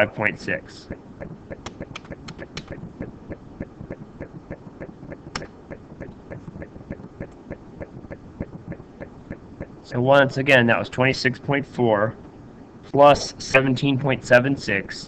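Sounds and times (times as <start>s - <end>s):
computer keyboard typing: 1.2s - 9.7s
mouse clicks: 1.6s - 2.8s.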